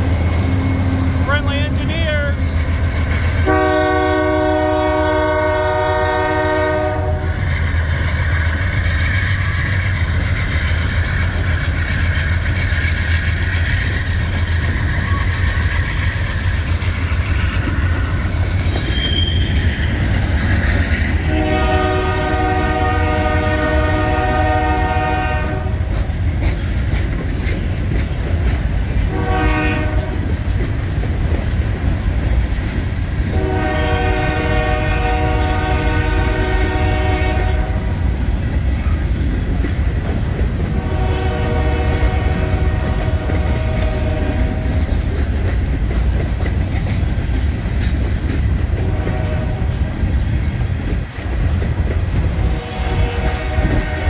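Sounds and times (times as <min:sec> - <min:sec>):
train cars rumbling: 0:00.0 - 0:54.0
locomotive air horn blasts: 0:03.4 - 0:07.4, 0:21.2 - 0:25.8, 0:29.1 - 0:30.2, 0:33.3 - 0:37.9, 0:40.8 - 0:44.8, 0:48.8 - 0:49.8, 0:52.4 - 0:54.0.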